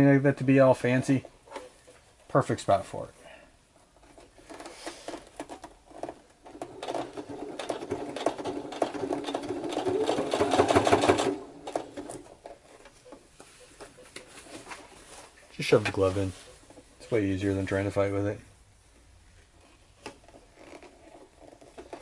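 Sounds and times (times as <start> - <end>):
sewing machine stitching: 4.5 - 12.5.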